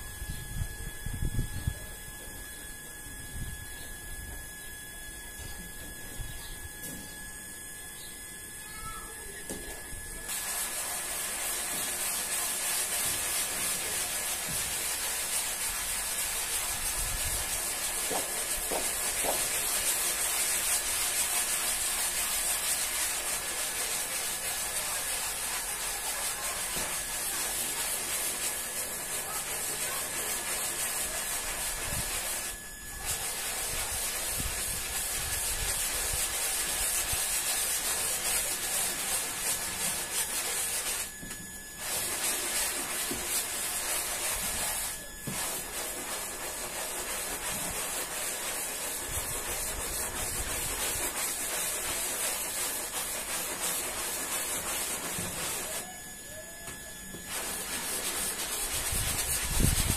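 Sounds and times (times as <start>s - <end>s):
brush scrubbing wet rug: 9.5s - 56.4s, 57.1s - 59.9s.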